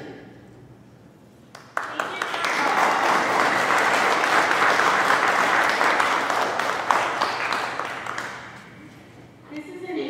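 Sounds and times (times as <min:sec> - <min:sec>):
crowd applause: 0:01.6 - 0:08.8.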